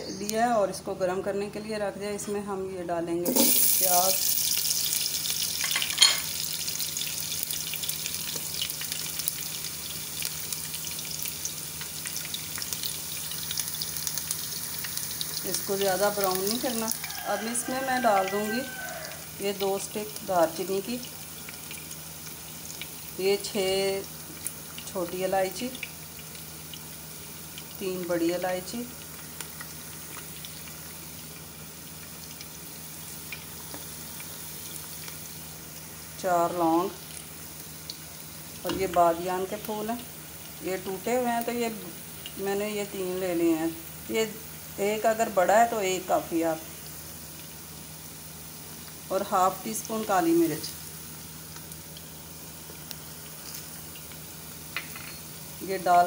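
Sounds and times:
onions sizzling in hot oil: 3.2 - 56.0
small crackles: 28.9 - 35.4, 50.8 - 54.4.

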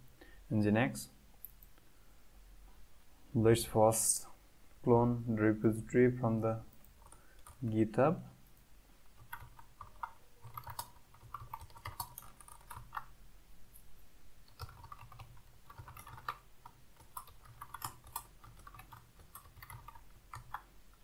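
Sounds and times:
typing on keyboard: 9.2 - 13.1, 14.5 - 21.0.

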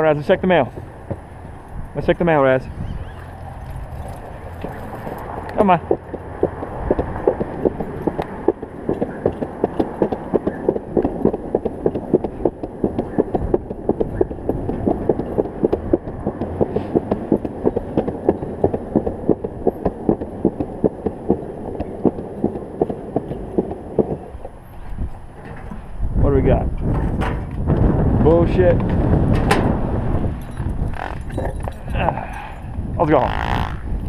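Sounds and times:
wheels clacking over slab joints: 0.0 - 26.0
longboard wheels rolling on concrete: 0.0 - 34.0.

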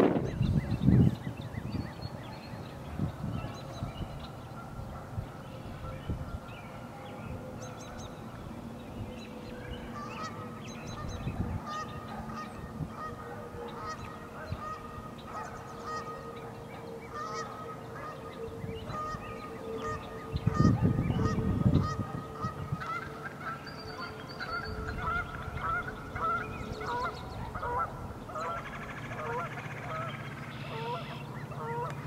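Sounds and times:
steady droning tone: 0.0 - 32.0
geese honking: 9.3 - 32.0.

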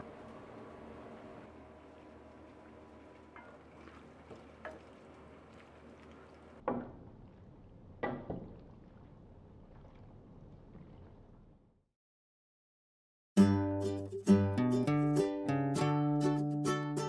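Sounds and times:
wooden spoon stirring pasta: 3.4 - 6.4.

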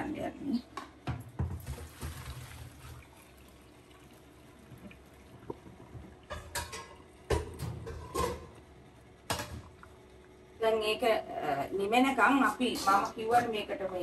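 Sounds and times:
hot water pouring into colander: 1.6 - 6.9.

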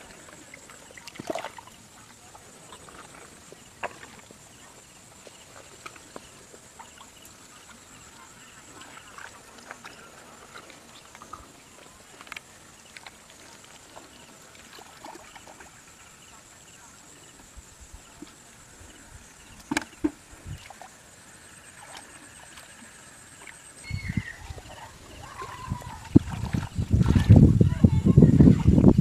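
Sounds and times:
hands squelching in wet mud: 23.4 - 27.4.

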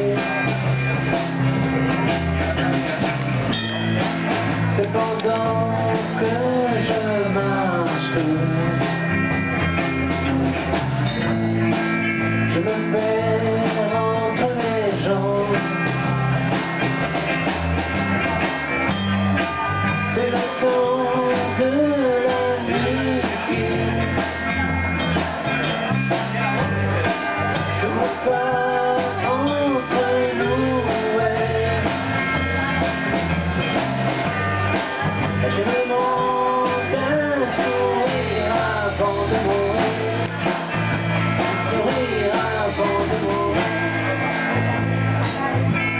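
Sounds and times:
person singing: 0.0 - 10.4, 12.2 - 16.3, 18.9 - 25.2, 26.2 - 45.9
electric guitar: 0.0 - 45.9.

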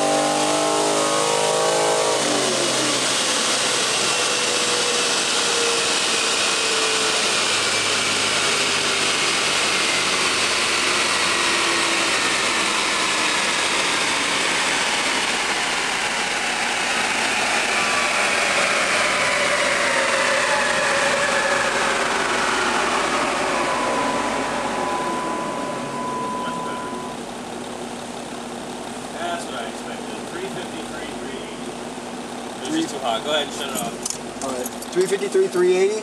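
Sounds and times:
drivetrain and roller whine: 0.0 - 36.0
steady high tone: 9.9 - 27.4.

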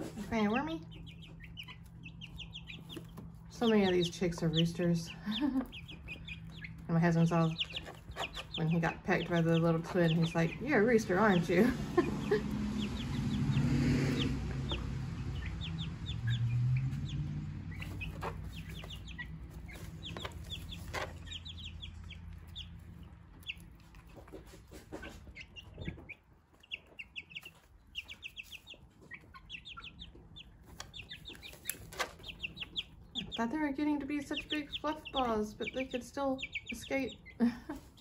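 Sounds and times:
birds scratching in straw: 0.0 - 15.6, 17.7 - 29.6, 30.5 - 32.9
chicks peeping: 0.0 - 38.0
hen clucking: 0.0 - 38.0.

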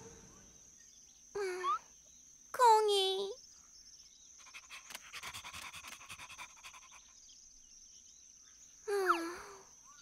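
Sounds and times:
cartoon puppy panting: 4.4 - 7.2.

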